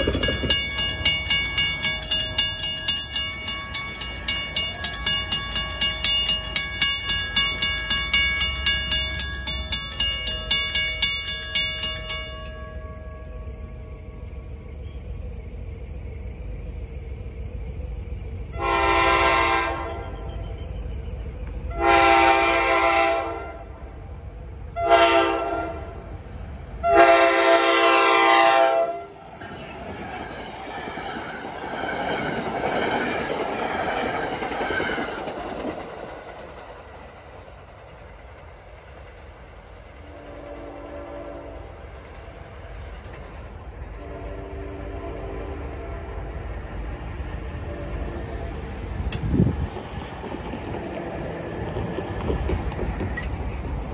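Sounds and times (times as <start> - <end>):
train wheels clattering on rails: 0.0 - 13.3, 29.1 - 44.8, 48.6 - 53.9
locomotive horn blasts: 18.6 - 20.4, 21.7 - 23.7, 24.8 - 26.0, 26.8 - 29.2, 40.1 - 41.7, 44.0 - 46.4, 47.6 - 48.6.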